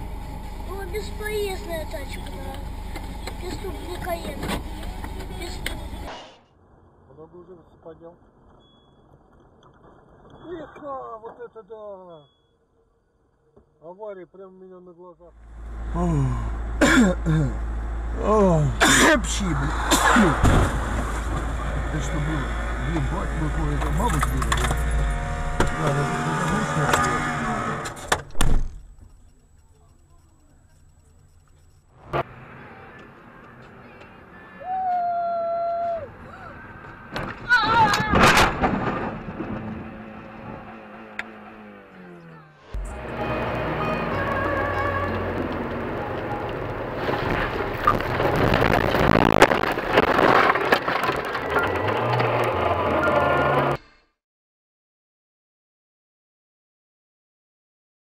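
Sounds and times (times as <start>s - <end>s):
loud thumps: 20.0s - 21.5s, 37.1s - 39.9s, 47.0s - 50.6s
clattering: 37.2s - 39.8s, 47.0s - 52.5s
car ploughing through snow: 44.7s - 53.8s
branches cracking against car: 46.5s - 52.9s.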